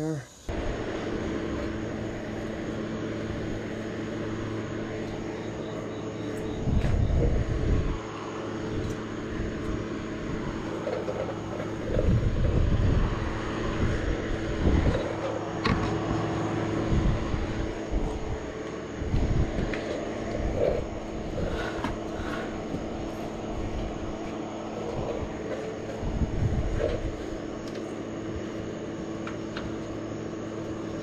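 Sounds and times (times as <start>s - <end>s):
air compressor humming: 0.0s - 31.0s
bike tyre rubbing and thumping: 9.4s - 16.2s, 19.0s - 27.9s.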